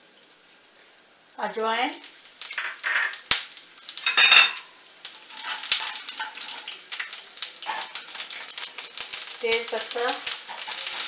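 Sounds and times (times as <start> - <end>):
spices sizzling in hot oil: 0.0 - 11.0
spatula scraping pan: 5.3 - 6.8, 7.6 - 8.5, 10.3 - 11.0.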